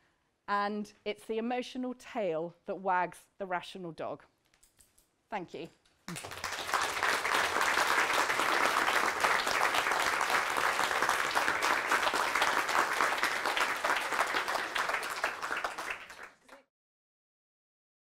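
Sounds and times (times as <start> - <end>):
audience applauding: 6.1 - 16.6.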